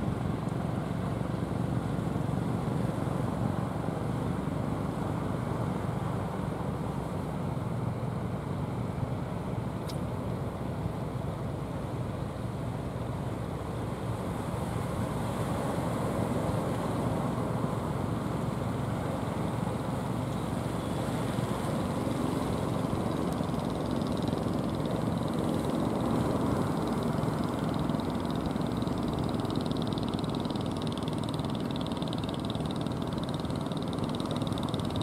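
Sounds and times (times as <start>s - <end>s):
boat motors running: 16.5s - 35.0s.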